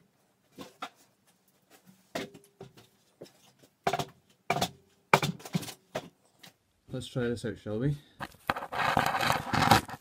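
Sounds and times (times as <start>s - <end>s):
tools and wood knocking: 2.1s - 6.2s.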